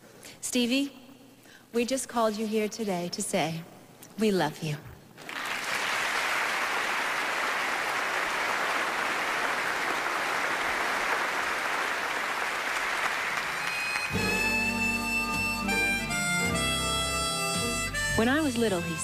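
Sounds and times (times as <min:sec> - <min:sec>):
audience applauding: 0:05.2 - 0:14.6
music with sustained notes: 0:13.6 - 0:19.0.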